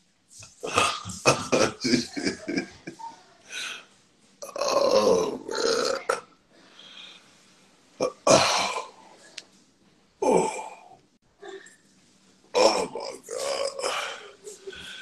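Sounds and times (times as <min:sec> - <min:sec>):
man making throaty vocal bursts: 0:00.6 - 0:02.6.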